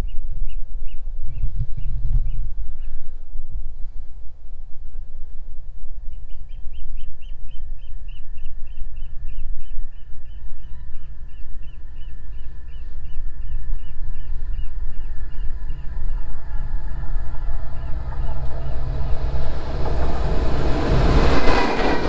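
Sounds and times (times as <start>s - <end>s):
wind on microphone: 0.0s - 22.0s
rising hum from rails: 8.8s - 22.0s.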